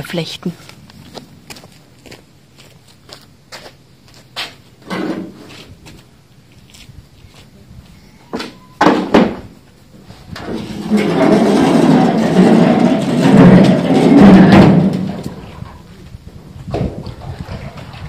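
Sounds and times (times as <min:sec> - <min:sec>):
metal tub scraping on cobblestones: 0:10.3 - 0:15.8
metal tub knocked: 0:11.1 - 0:15.2.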